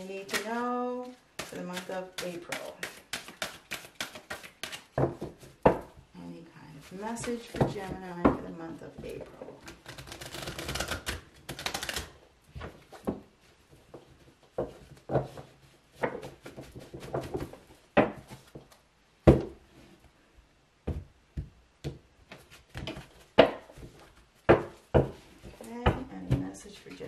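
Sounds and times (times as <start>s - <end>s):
cards being shuffled: 0.1s - 5.0s, 9.6s - 13.0s.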